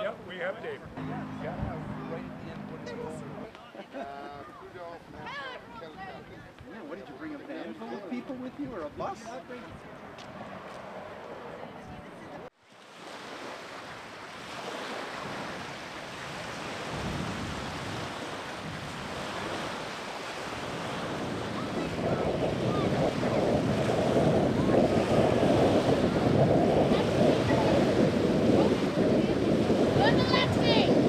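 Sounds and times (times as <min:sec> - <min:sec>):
small waves breaking on shore: 0:12.6 - 0:31.0
wind on microphone: 0:15.0 - 0:31.0.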